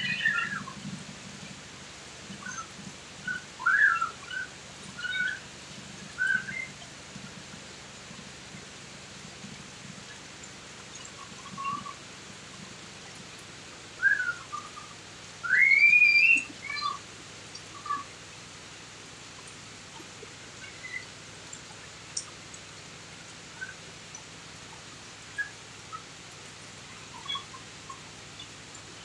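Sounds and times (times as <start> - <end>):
steady rain falling: 0.0 - 29.0
high whistled chirps: 14.0 - 14.7, 15.4 - 16.9.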